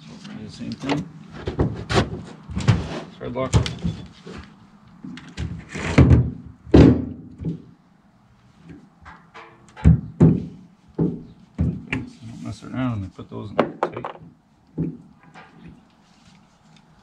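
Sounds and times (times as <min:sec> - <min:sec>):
thunks and clunks of parts: 0:00.8 - 0:07.8, 0:08.7 - 0:12.2, 0:13.6 - 0:15.8.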